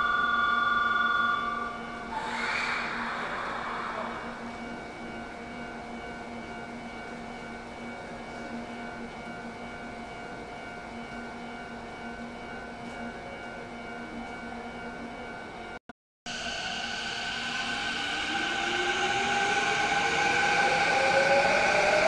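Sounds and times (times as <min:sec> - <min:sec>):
pulsing high tone: 0:00.0 - 0:05.8, 0:16.3 - 0:22.0.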